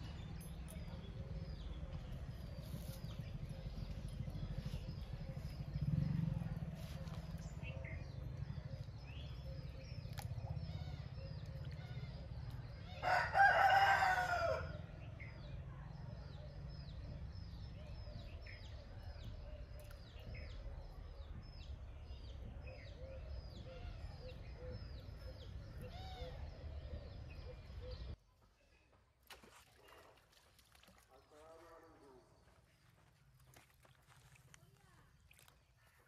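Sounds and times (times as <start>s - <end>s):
low outdoor rumble: 0.0s - 28.2s
rooster crowing: 13.0s - 14.8s.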